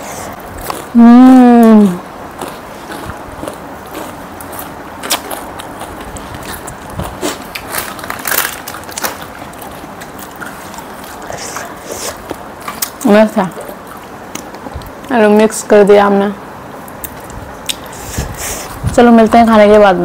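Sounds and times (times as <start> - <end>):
crunching and rustling food: 0.0 - 15.2.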